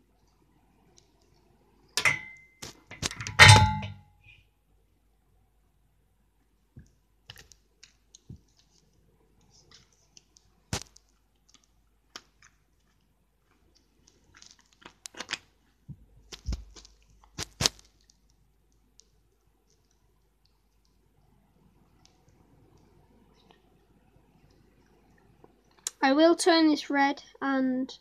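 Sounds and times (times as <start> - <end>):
toy parts clicking and knocking: 2.0 - 3.9.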